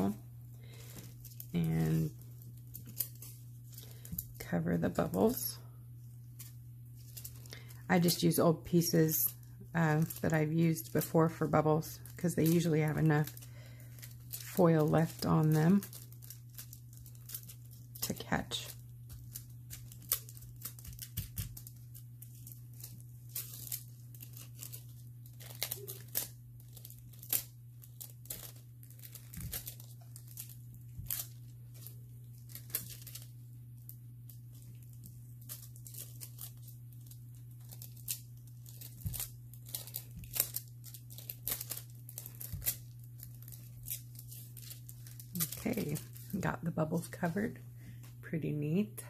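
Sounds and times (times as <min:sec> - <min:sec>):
foil crinkling and crackling: 0:00.0 - 0:48.3.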